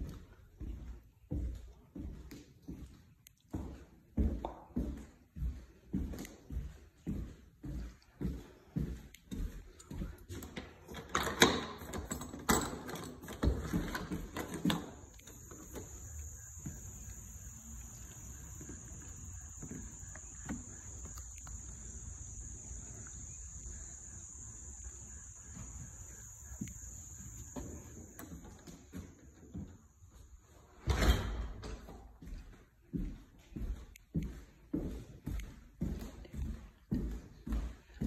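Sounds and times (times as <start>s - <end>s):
footsteps: 0.0s - 38.0s
high-pitched insect drone: 13.4s - 30.2s.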